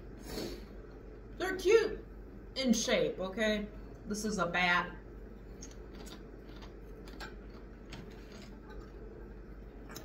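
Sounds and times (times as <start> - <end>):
crunchy snacks being chewed: 5.6 - 8.8.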